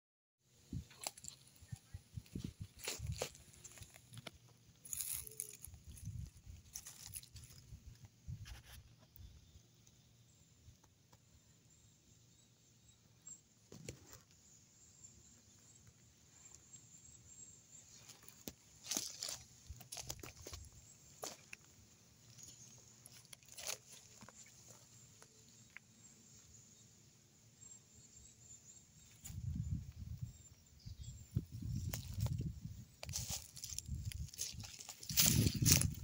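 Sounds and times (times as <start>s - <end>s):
footsteps crunching through dry leaves: 2.2s - 7.6s, 18.0s - 21.6s, 22.2s - 24.9s, 31.6s - 36.0s.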